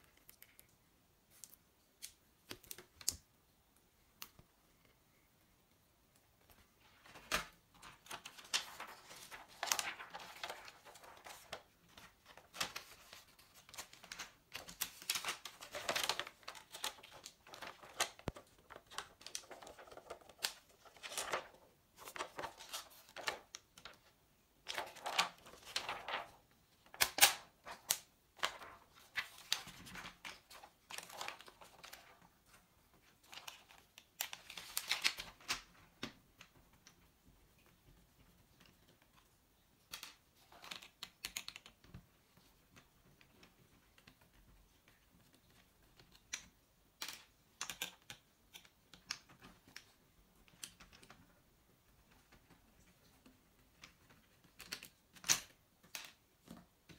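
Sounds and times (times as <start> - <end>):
plastic sheets crinkling: 6.8 - 36.2.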